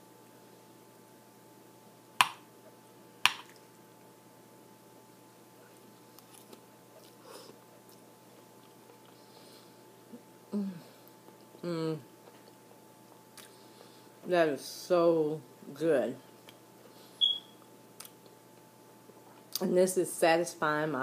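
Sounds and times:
faint chewing: 5.6 - 9.7, 12.2 - 14.0.

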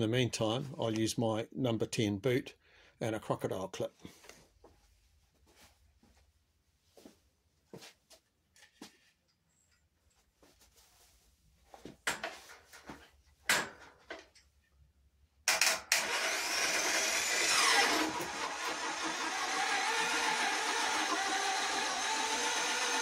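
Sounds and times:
starter motor whining and grinding: 15.5 - 23.0.

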